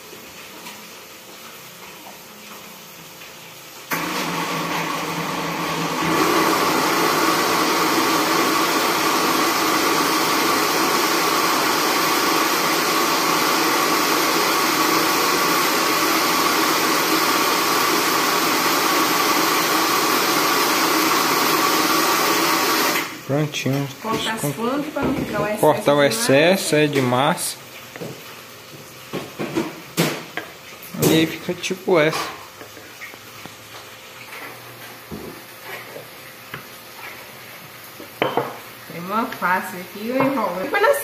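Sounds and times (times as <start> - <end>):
electric appliance motor whirring: 3.9 - 23.2.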